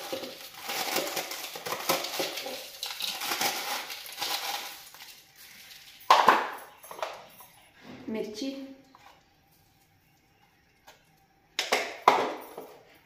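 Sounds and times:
frozen leaves rustling and crunching: 0.0 - 6.0.

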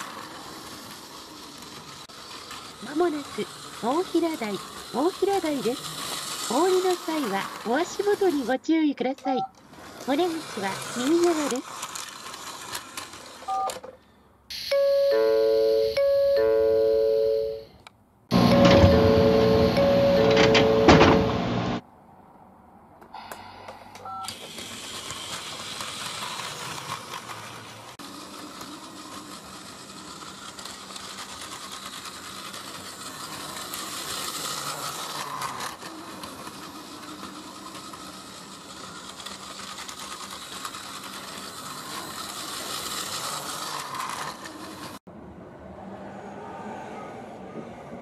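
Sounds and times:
rattle of wheels and gears: 0.0 - 14.2, 18.3 - 21.4, 23.6 - 45.1
toy train motor whirring: 0.0 - 16.4, 23.9 - 45.1.

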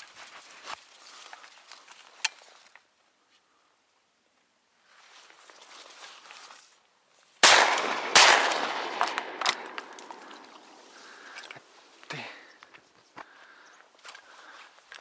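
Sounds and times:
shotgun shots: 7.4 - 10.8
rolling echo: 7.4 - 11.6.

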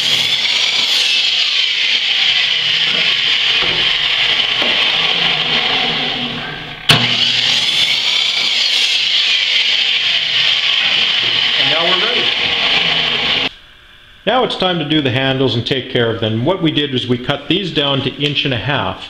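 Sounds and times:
miter saw cutting wood: 0.0 - 13.5.

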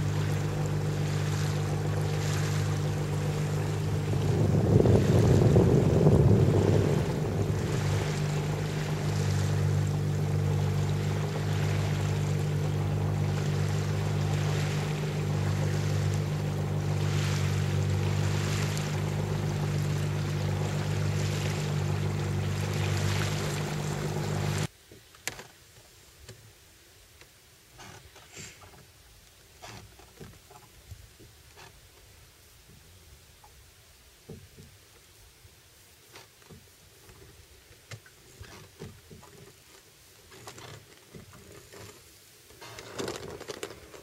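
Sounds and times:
boat engine running: 0.0 - 24.7
water rushing along hull: 0.0 - 25.4, 27.6 - 44.0.

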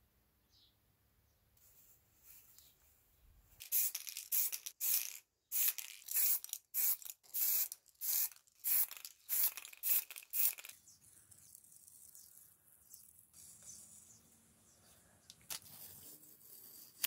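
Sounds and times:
spray paint can hissing bursts: 3.6 - 10.8.

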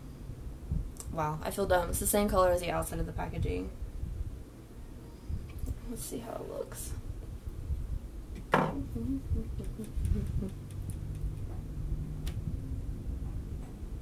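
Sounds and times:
low steady hum: 0.0 - 14.0
hard object knocking on table: 8.5 - 8.8.

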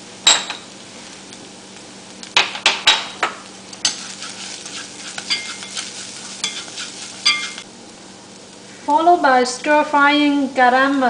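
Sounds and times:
food sizzling in oil: 0.0 - 11.0
wooden utensil scraping pan: 3.8 - 7.6
metallic rings: 5.3 - 5.8, 6.4 - 7.6.

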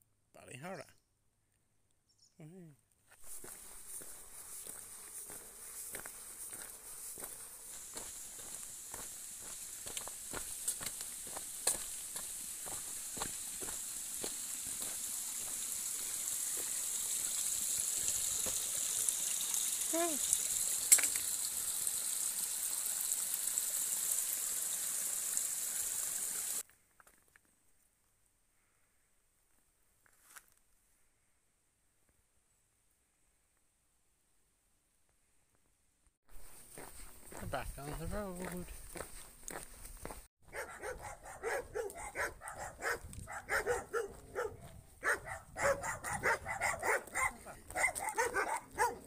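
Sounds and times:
stream running over rocks: 3.2 - 26.6
dogs barking rapidly: 40.4 - 49.0.

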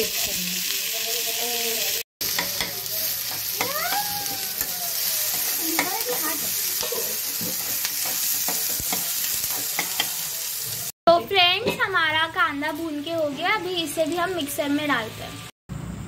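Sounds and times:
onions sizzling in a pan: 0.0 - 15.5
metal spoon scraping a pan: 5.3 - 10.8.

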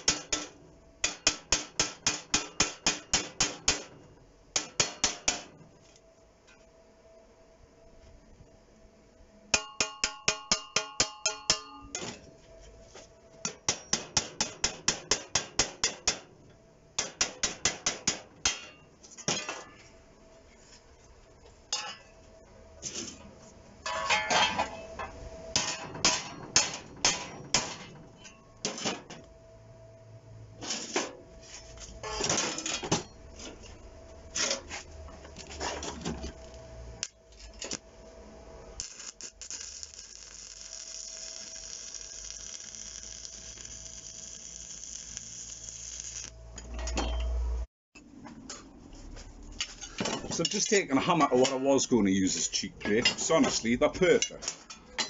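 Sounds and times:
steel ringing: 38.8 - 47.5.

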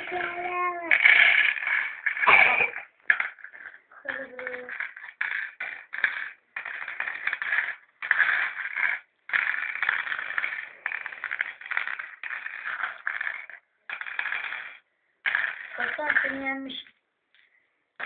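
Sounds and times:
stones rattling and clicking: 0.0 - 16.7.

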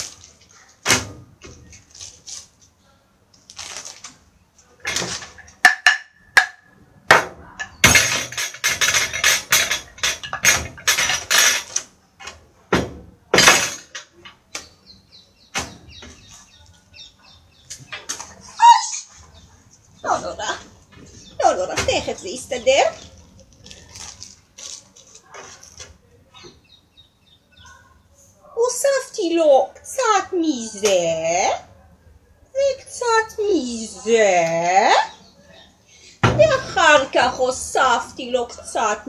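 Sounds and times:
clattering and rustling: 3.5 - 6.0, 7.6 - 14.5, 17.7 - 26.6.

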